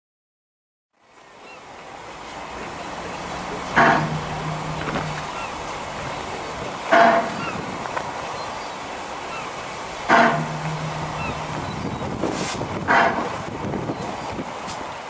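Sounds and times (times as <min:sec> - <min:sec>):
low steady hum: 0:02.0 - 0:12.3
steam locomotive hissing: 0:02.0 - 0:13.5
sharp bursts of steam: 0:02.3 - 0:07.6.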